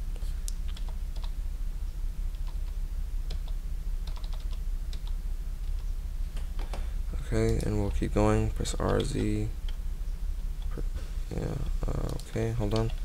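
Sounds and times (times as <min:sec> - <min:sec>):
steady low hum: 0:00.0 - 0:13.0
keystrokes on computer keyboard: 0:00.5 - 0:01.4, 0:02.3 - 0:06.8, 0:07.4 - 0:08.0, 0:08.8 - 0:09.8, 0:12.0 - 0:13.0.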